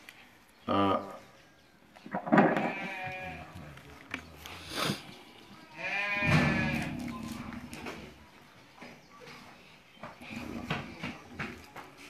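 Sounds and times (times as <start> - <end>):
livestock bleating: 2.4 - 3.6, 5.7 - 7.4.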